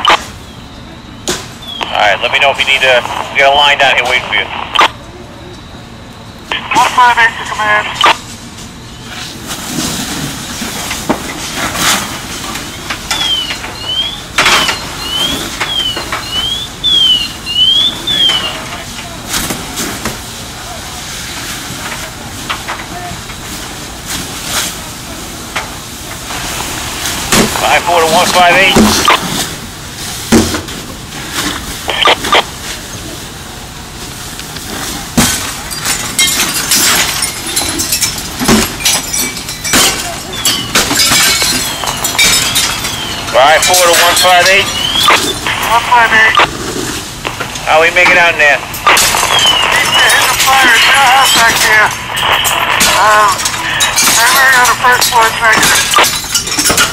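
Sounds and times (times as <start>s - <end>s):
shattering and falling glass: 10.8s - 18.5s, 35.1s - 45.4s, 48.8s - 56.9s
sweeping electronic alarm: 12.7s - 18.8s, 40.2s - 46.4s.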